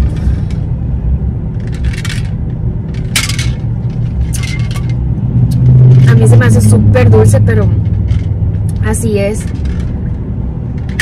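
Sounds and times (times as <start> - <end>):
rattling scraping sounds: 0.0 - 0.8, 1.5 - 5.2, 7.1 - 11.0
car cabin rumble: 0.0 - 11.0.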